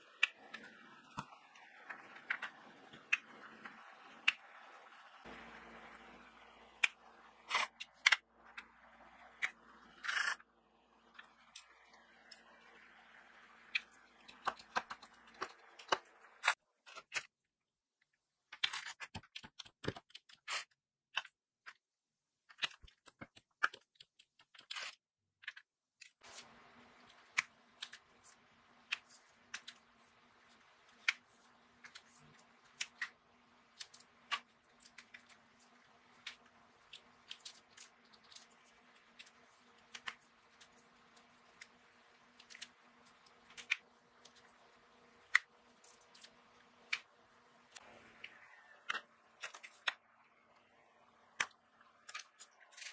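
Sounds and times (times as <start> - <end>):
faint steady hum: 0.0 - 16.5.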